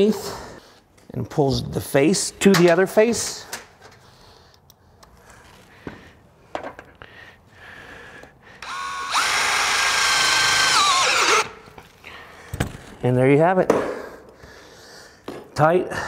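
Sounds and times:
cordless drill whining: 8.6s - 11.7s.

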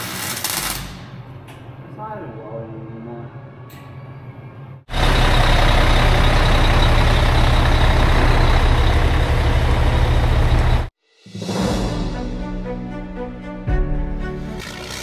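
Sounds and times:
diesel engine rumbling: 4.9s - 10.9s.

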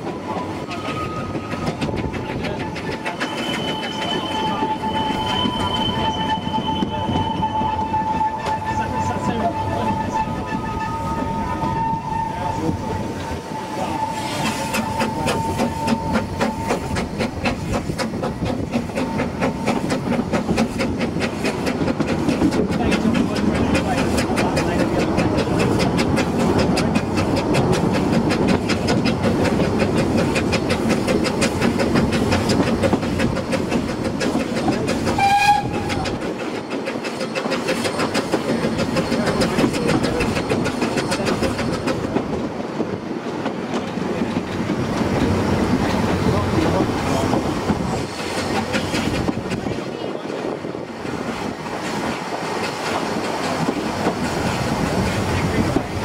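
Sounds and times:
steam train running: 0.0s - 56.0s
train whistle blast: 3.2s - 16.9s, 35.1s - 36.0s.

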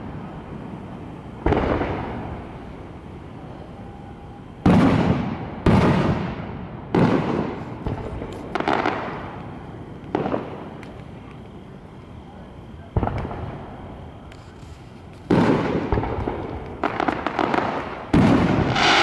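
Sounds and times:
firework booms rumbling: 0.0s - 3.0s, 4.6s - 11.0s, 12.6s - 14.3s, 15.3s - 19.0s
small firework bangs: 0.0s - 3.7s, 4.5s - 19.0s.

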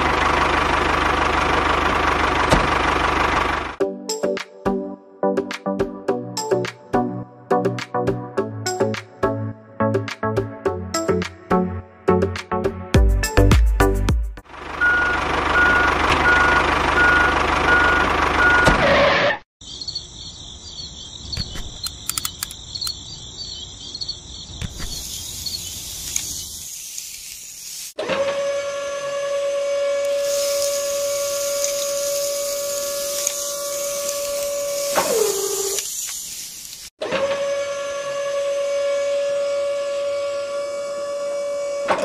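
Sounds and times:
vehicle reversing beep: 14.8s - 18.9s
high chirping: 19.6s - 26.7s
soft clicks: 21.4s - 23.0s
electric whine of lifting mechanism: 28.0s - 35.9s, 37.0s - 42.0s.

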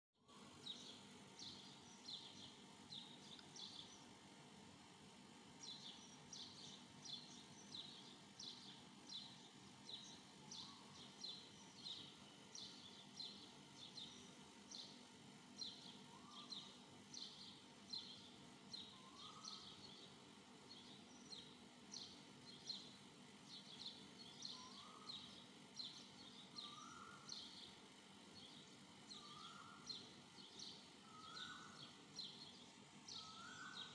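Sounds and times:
faint bird chirping: 0.2s - 33.9s
bird rising call: 26.6s - 27.3s, 31.1s - 31.8s, 33.2s - 33.9s.

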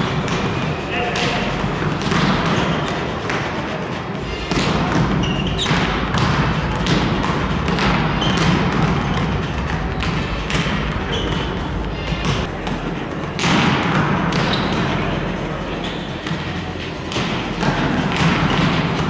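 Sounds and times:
music over loudspeakers: 0.0s - 19.0s
high squeaks: 5.2s - 5.9s.

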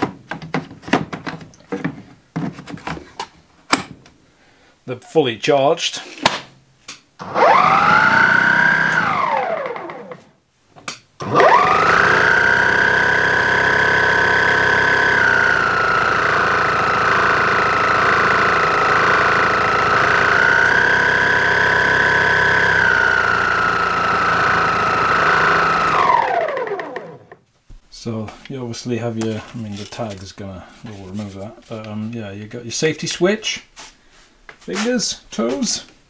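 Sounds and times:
snow blower motor whining: 7.2s - 10.2s, 11.2s - 27.4s.

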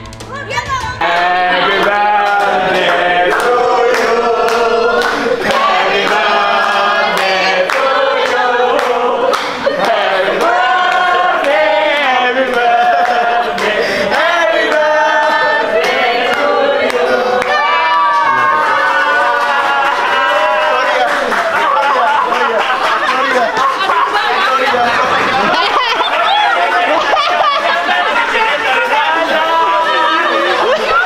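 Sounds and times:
hand-clapping in time: 0.1s - 14.9s
group singing in chorus: 1.0s - 18.4s.

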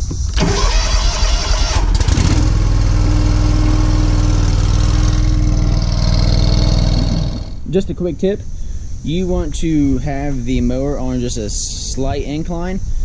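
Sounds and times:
starter motor cranking: 0.3s - 7.7s
mower engine running: 0.4s - 7.7s.

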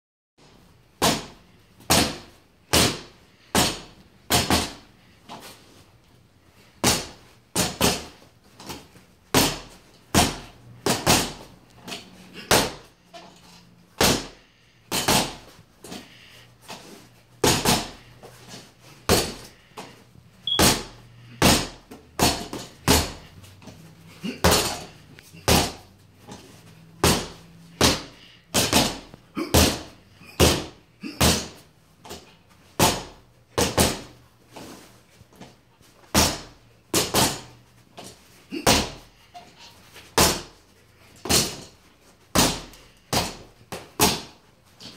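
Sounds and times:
punches smacking a punching bag: 1.0s - 4.9s, 6.8s - 12.9s, 14.0s - 16.0s, 17.4s - 18.0s, 19.1s - 19.5s, 20.5s - 23.3s, 24.2s - 26.4s, 27.0s - 34.2s, 36.0s - 37.5s, 38.5s - 39.1s, 40.1s - 40.6s, 41.2s - 41.7s, 42.3s - 44.4s.

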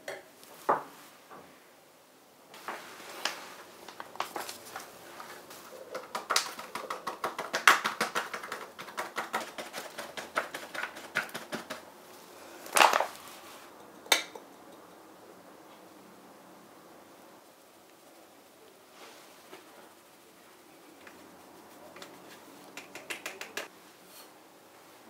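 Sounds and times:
paper bag crinkling: 2.9s - 6.7s, 12.6s - 13.4s.

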